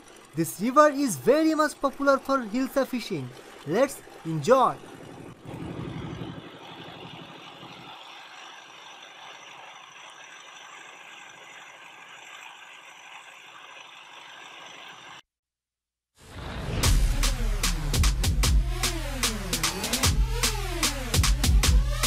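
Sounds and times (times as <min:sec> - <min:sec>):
boat engine running: 0:00.0 - 0:15.2
water rushing along boat hull: 0:00.0 - 0:15.2.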